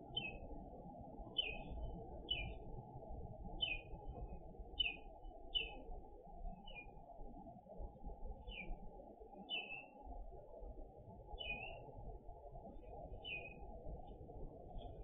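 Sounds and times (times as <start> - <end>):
bird chirping: 1.4 - 1.7, 2.3 - 2.6, 3.6 - 3.9, 9.5 - 9.9, 11.4 - 11.8, 13.2 - 13.6.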